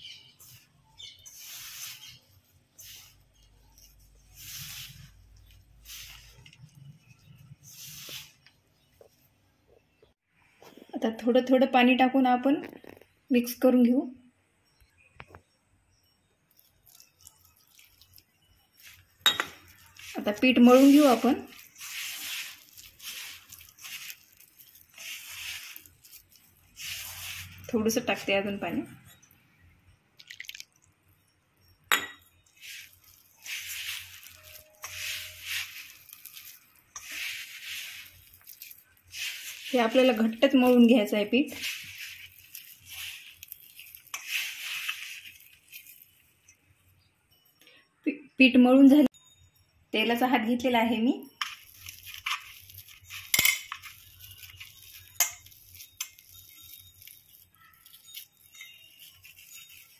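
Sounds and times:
hands rubbing flour in steel bowl: 0.1s - 9.2s, 16.5s - 28.8s, 32.4s - 46.3s, 51.5s - 59.9s
clinks against steel bowl: 19.2s - 19.6s, 31.9s - 32.3s
sharp metallic clink: 19.2s - 19.6s.

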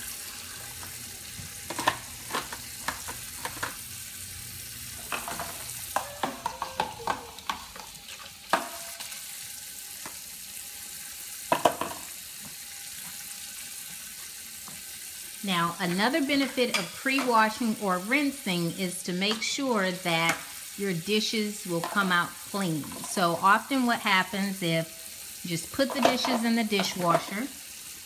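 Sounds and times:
dishes clattering: 1.7s - 3.8s, 5.0s - 9.1s, 11.5s - 12.1s, 25.8s - 27.3s.

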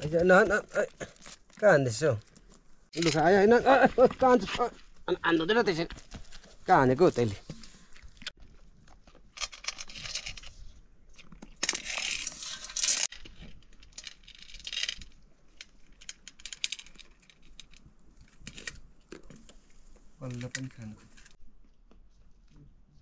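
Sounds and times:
small objects clinking: 11.5s - 17.8s.

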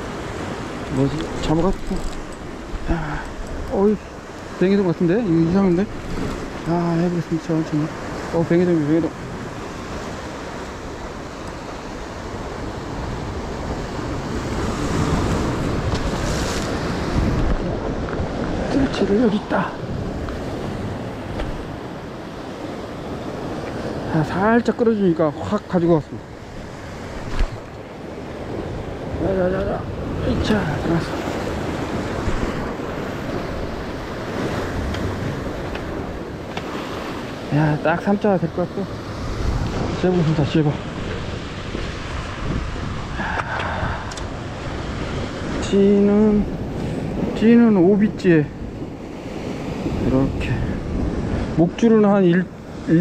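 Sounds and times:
ocean surf breaking over rocks: 0.0s - 53.0s
wind on microphone: 9.1s - 24.1s, 26.1s - 37.9s, 38.8s - 51.9s.

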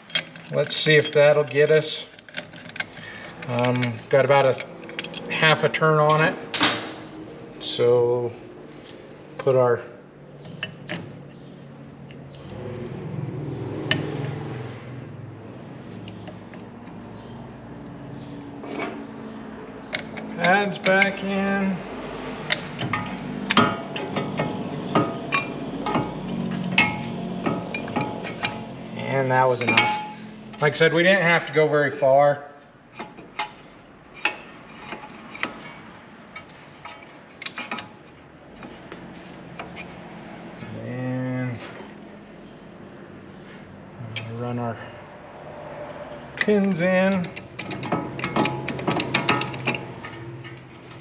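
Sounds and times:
light metallic clicks and clinks: 0.0s - 6.8s, 44.0s - 44.5s, 46.4s - 51.0s.

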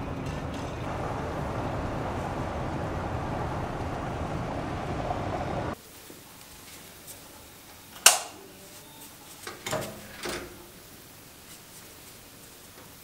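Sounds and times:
sliding door rolling on track: 0.0s - 5.8s.

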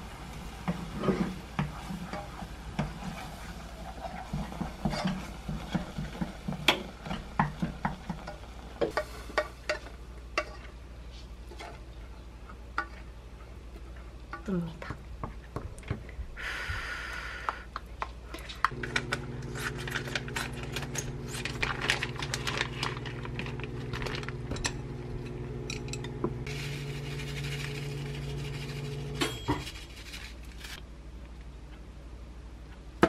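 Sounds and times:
appliance electrical hum: 0.0s - 33.0s.

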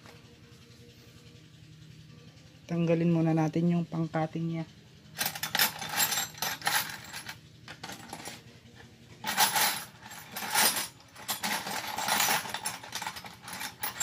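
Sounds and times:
metallic clinking and rattling: 5.0s - 14.0s.

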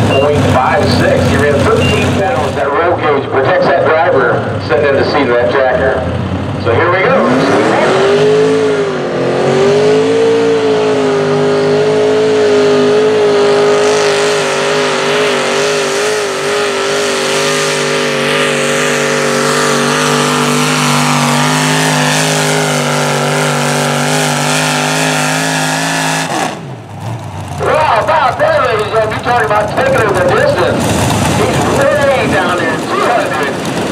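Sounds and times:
tractor engine at full throttle: 0.0s - 33.9s.

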